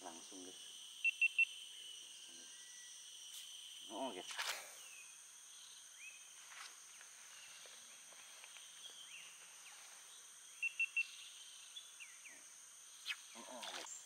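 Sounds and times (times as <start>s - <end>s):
high insect drone: 0.0s - 14.0s
bird chirps: 7.3s - 12.4s.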